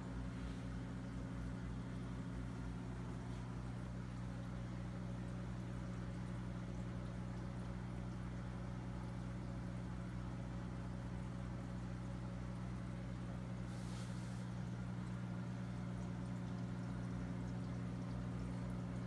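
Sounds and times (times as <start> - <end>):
aquarium pump humming: 0.0 - 19.0
soft hiss: 13.6 - 14.8.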